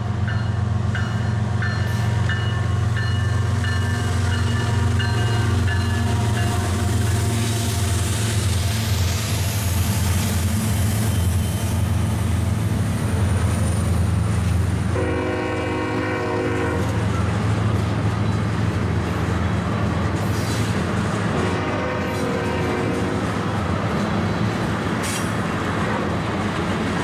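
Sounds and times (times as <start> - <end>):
diesel locomotive rumble: 0.0 - 27.0
rail cars rolling on rails: 0.0 - 27.0
train horn: 14.9 - 17.2, 21.4 - 23.2.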